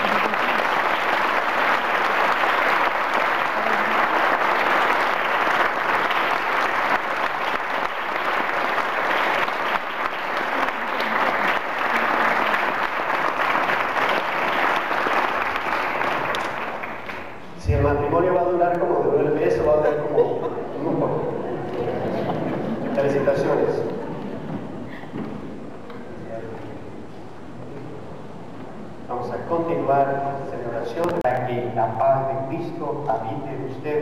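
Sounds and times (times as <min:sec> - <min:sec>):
crowd applauding: 0:00.0 - 0:17.4.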